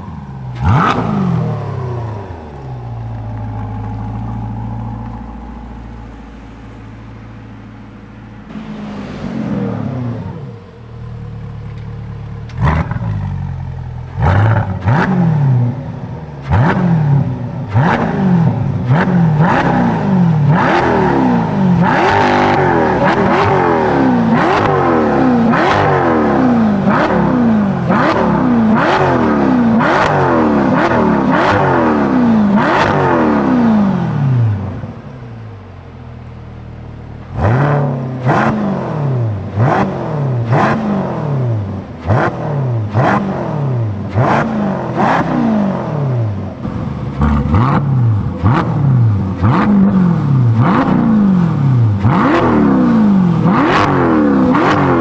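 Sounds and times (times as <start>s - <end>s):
car engine idling: 0.0s - 54.8s
car engine revving with cracks: 0.0s - 55.0s.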